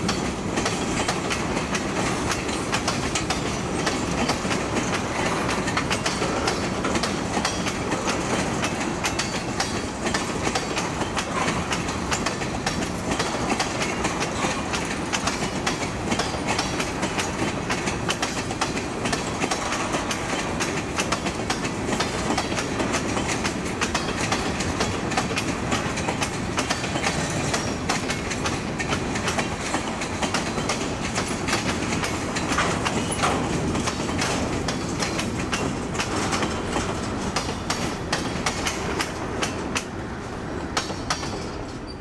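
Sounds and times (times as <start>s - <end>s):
train wheels clickety-clack: 0.0s - 42.0s.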